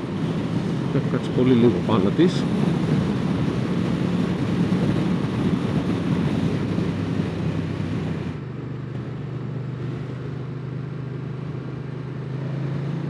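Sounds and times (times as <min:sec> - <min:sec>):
wind rushing: 0:00.0 - 0:08.4.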